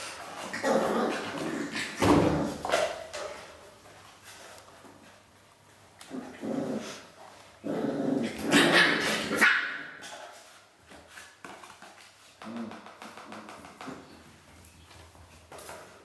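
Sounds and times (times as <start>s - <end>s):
puppy growling: 0.3s - 2.8s, 6.0s - 9.4s.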